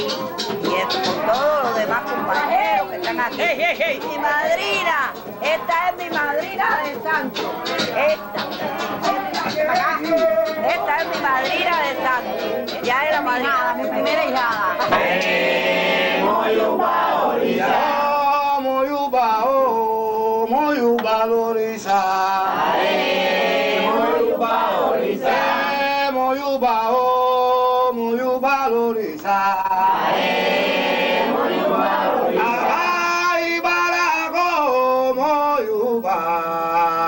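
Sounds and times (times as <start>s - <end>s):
group of voices chanting: 7.2s - 18.3s, 21.9s - 26.1s, 29.6s - 33.3s.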